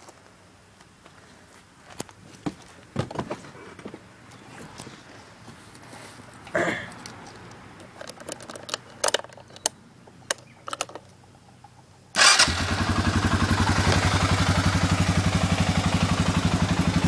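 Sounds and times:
engine starting and idling: 12.2s - 17.0s.

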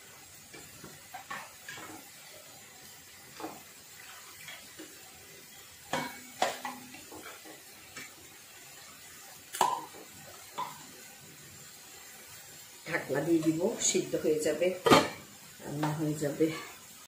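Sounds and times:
spatula knocking metal pan: 5.9s - 7.0s.

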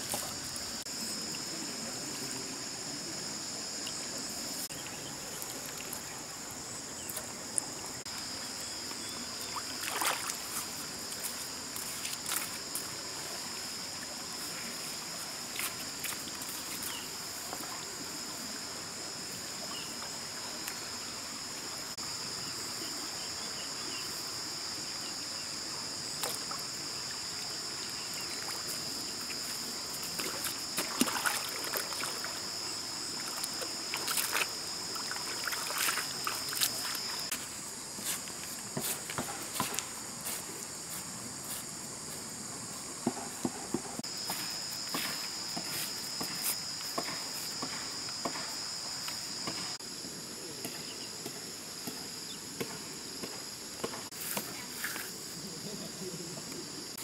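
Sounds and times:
insects droning: 0.0s - 57.0s
splashes and rustles of hands: 9.4s - 12.9s, 28.4s - 32.5s, 33.2s - 37.4s.

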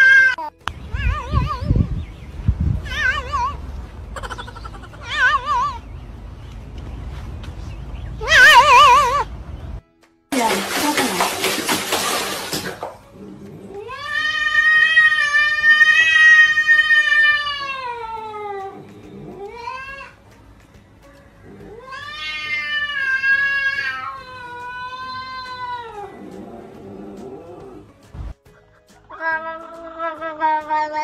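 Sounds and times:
cat meowing: 2.8s - 3.6s, 13.8s - 20.2s, 21.6s - 26.3s, 29.1s - 31.0s.

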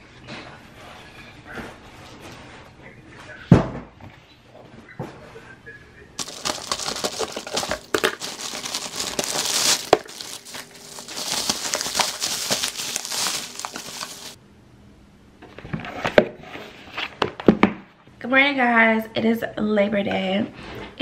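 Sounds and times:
wrapper crinkling: 6.2s - 14.4s.

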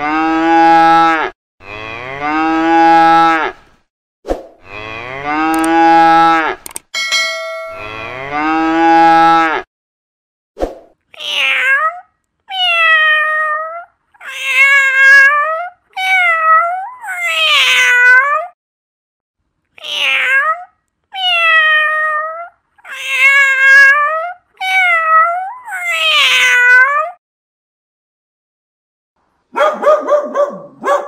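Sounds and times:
cat meowing: 19.8s - 27.2s.

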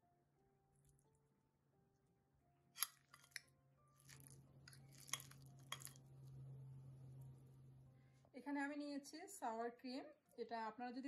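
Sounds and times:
metal spoon scraping ceramic bowl: 4.1s - 6.0s.

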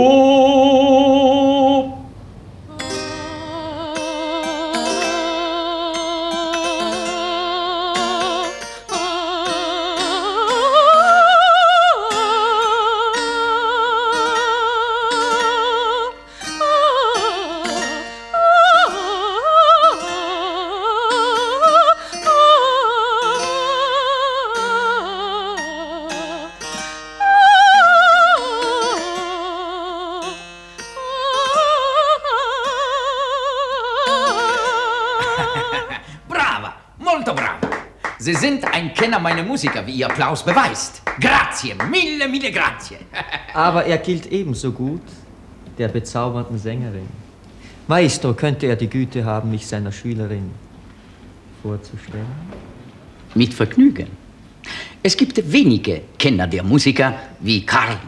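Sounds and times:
soprano singing an aria: 0.0s - 36.2s
plucked harpsichord chords: 2.7s - 33.2s, 33.9s - 37.6s.

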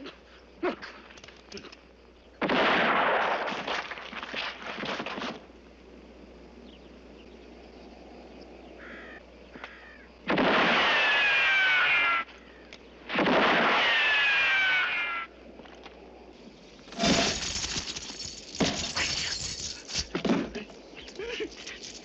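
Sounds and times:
gunshots: 2.4s - 5.3s, 10.3s - 11.7s, 13.1s - 14.1s
faint bird call: 8.6s - 10.1s, 10.9s - 12.8s.

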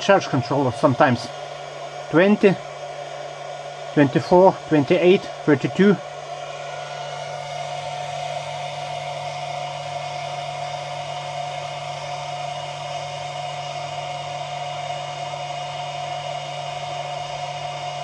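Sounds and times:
small motor whirring hum: 0.0s - 18.0s.

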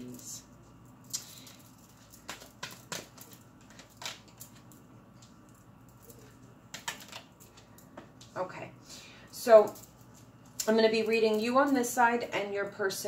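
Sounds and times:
cards flicking and tapping on table: 2.1s - 4.7s, 6.7s - 8.2s.

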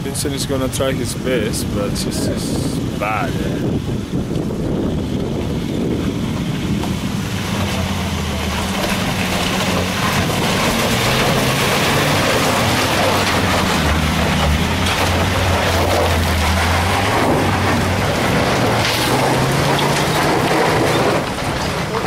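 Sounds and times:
engine rumbling under load: 0.0s - 22.0s
tyres crunching on gravel: 0.3s - 22.0s.

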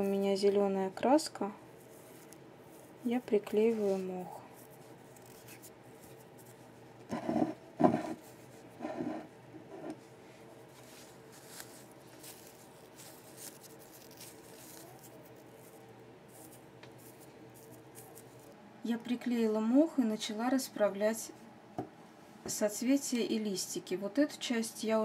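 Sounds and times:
rustling of moss being rubbed: 0.0s - 9.2s, 10.2s - 18.5s.

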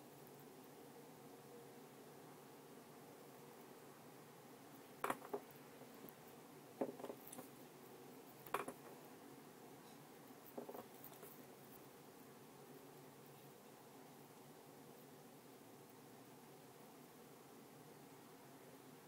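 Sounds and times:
faint steady hiss: 0.0s - 19.0s
pencil tapping and scratching paper: 10.5s - 11.4s.

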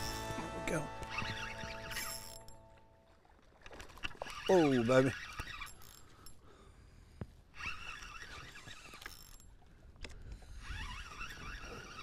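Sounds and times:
fishing reel gears whirring: 0.0s - 2.6s, 4.0s - 6.4s, 7.5s - 9.6s, 10.5s - 12.0s.

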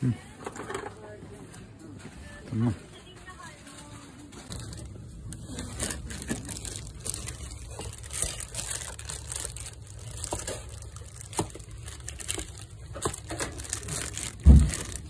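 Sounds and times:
plastic packaging crinkling: 3.4s - 15.0s.

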